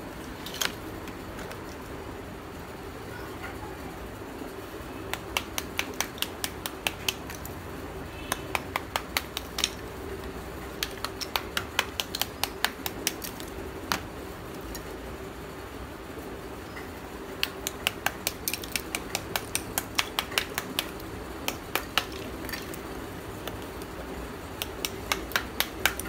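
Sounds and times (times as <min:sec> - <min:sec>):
small hammer tapping clay slab: 0:05.1 - 0:07.5, 0:08.2 - 0:14.1, 0:17.4 - 0:26.0.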